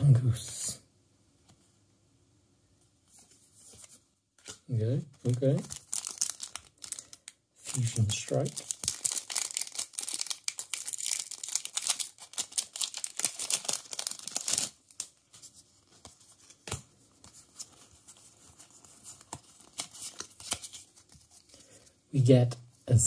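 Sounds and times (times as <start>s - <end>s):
foil wrapper tearing and crinkling: 5.3s - 15.2s.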